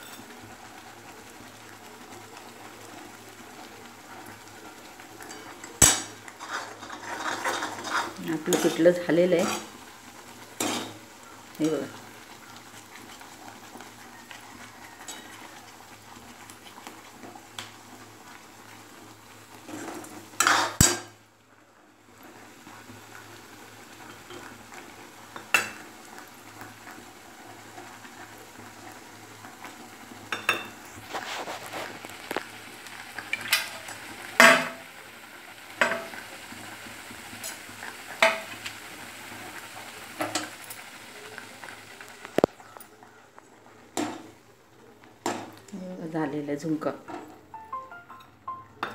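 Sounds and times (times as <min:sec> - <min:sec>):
faint sizzle from pan: 0:00.0 - 0:48.9
steel spoon scraping a pan: 0:05.2 - 0:09.8, 0:10.6 - 0:11.0, 0:19.7 - 0:21.0, 0:30.4 - 0:32.4.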